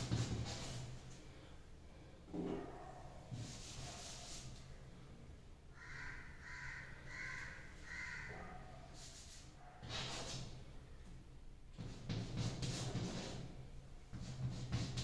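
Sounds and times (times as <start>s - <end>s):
chalk scratching on blackboard: 0.0s - 1.0s, 3.3s - 4.6s, 9.0s - 10.6s, 11.8s - 15.0s
crow cawing: 5.7s - 8.6s.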